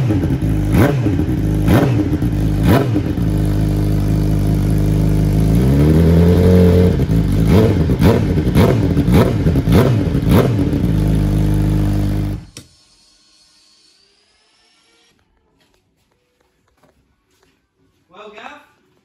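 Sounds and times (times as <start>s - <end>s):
motorcycle engine revving: 0.0s - 12.6s.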